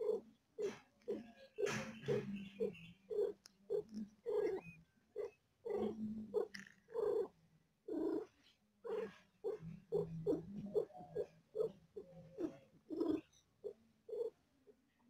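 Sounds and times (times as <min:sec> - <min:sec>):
cat purring: 0:03.1 - 0:14.4.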